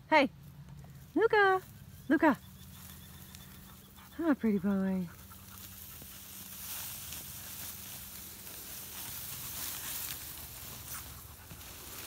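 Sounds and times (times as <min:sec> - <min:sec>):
wheat stalks rustling: 0:00.4 - 0:12.0.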